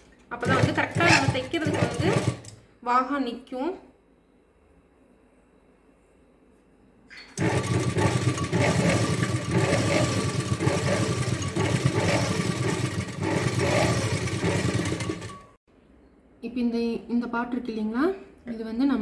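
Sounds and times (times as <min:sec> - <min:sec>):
sewing machine running: 0:00.4 - 0:02.6, 0:07.4 - 0:15.6.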